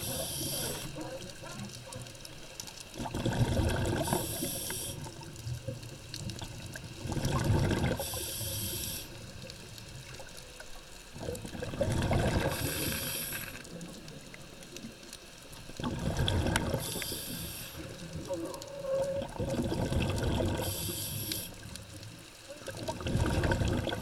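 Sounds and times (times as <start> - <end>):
scuba regulator hiss: 0.0 - 1.0, 4.0 - 5.1, 8.0 - 9.2, 12.5 - 13.6, 16.8 - 18.0, 20.6 - 21.7
exhaled bubbles underwater: 0.0 - 24.0.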